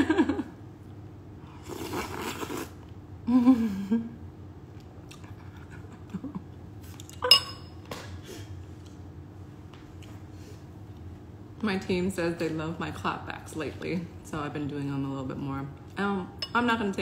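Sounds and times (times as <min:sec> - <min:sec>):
person slurping soup: 0:01.5 - 0:02.8
spoon clink: 0:07.2 - 0:07.8.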